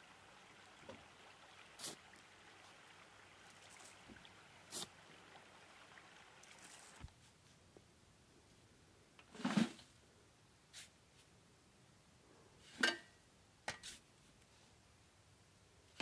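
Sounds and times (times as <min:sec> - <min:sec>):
creek flowing: 0:00.0 - 0:07.1.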